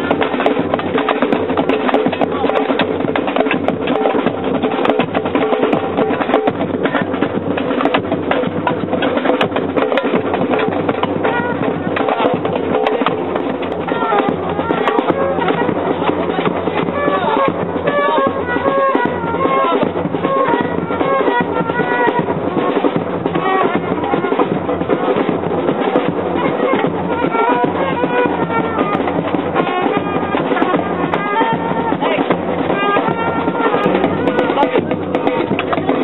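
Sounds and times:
bass drum thumps: 0.0s - 36.0s
drums keeping steady beat: 0.0s - 36.0s
trumpet playing melodic phrases: 11.2s - 25.2s, 25.9s - 36.0s.

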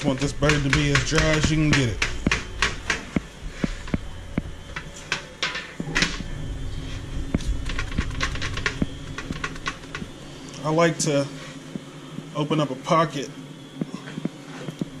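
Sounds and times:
knocks and clicks of wire rack: 0.0s - 3.2s.

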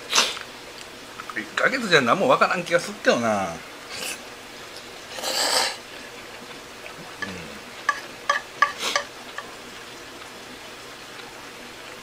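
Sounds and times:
utensils clicking on a dish: 7.2s - 9.5s.

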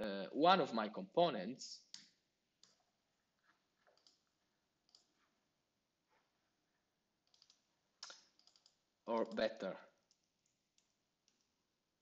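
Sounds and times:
mouse and keyboard clicks: 3.8s - 4.2s, 4.9s - 5.1s, 7.3s - 11.5s.

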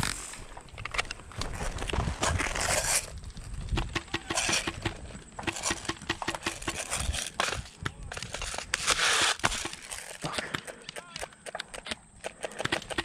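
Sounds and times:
rapid even ticks: 3.7s - 7.2s, 9.0s - 13.0s.

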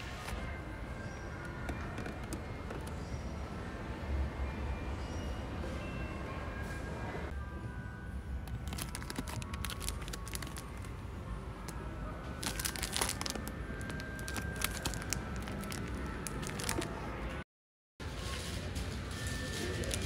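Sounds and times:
plastic packaging crinkling: 8.5s - 10.9s, 12.4s - 17.0s.

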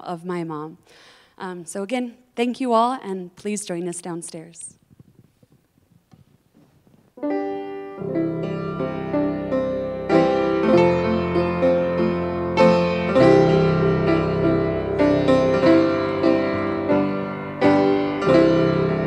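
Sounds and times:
piano music: 7.2s - 19.0s.

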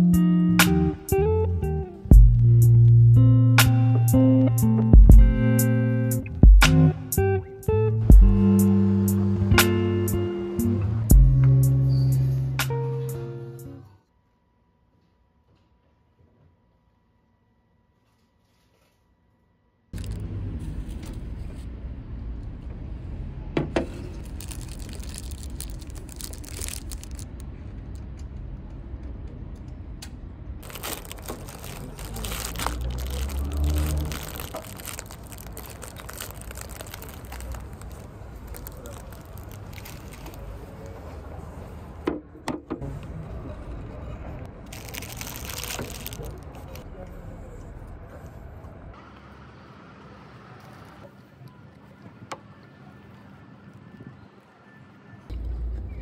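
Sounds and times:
traffic hum: 0.0s - 13.9s, 20.0s - 56.0s
faint voices: 30.7s - 42.0s.

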